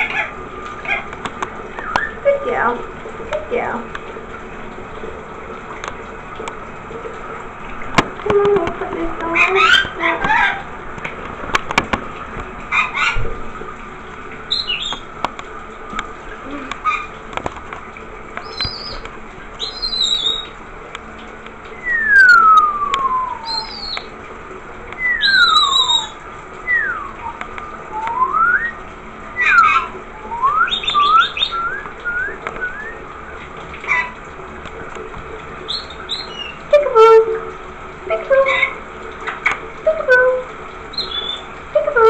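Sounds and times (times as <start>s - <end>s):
shower running: 0.0s - 42.0s
sliding whistles: 1.8s - 2.2s, 21.7s - 24.1s, 25.0s - 28.8s, 29.4s - 33.4s
parrot chirping: 9.3s - 10.6s, 14.5s - 15.0s, 19.6s - 20.5s, 23.3s - 24.1s, 25.0s - 27.0s, 29.4s - 29.9s, 30.7s - 31.7s, 35.7s - 36.6s, 40.0s - 42.0s.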